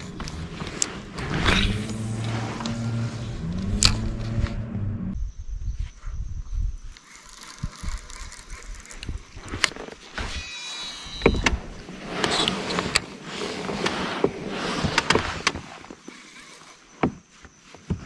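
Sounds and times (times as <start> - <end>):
fishing reel whirring: 6.8 - 12.6, 16.0 - 16.9.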